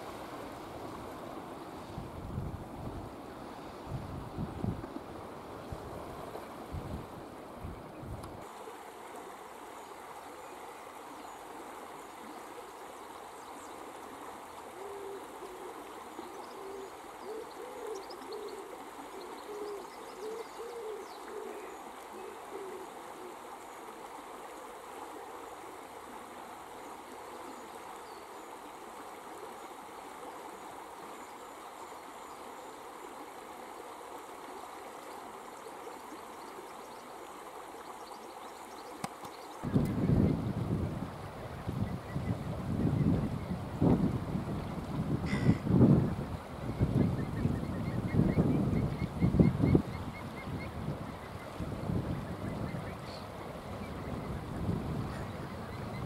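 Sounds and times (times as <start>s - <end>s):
river running over rocks: 0.0s - 39.9s.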